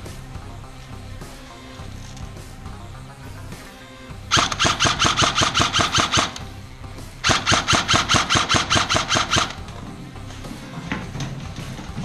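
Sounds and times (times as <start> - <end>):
airsoft rifle firing bursts: 4.3 - 6.4, 7.2 - 9.7.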